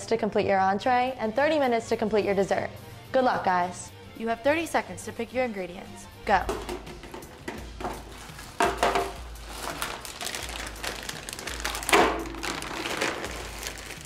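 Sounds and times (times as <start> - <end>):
plastic packaging crinkling: 7.9 - 14.0.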